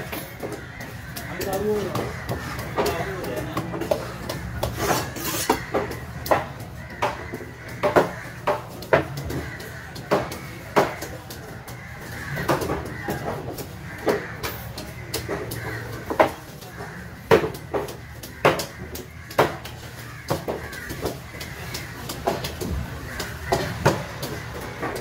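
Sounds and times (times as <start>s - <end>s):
knife scraping fish scales: 4.7s - 5.6s.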